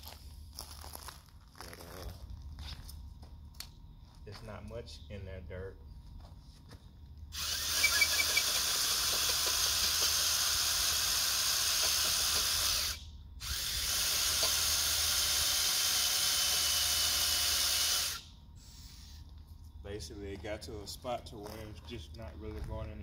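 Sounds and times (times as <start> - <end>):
cordless drill boring into dirt: 7.3 - 18.2.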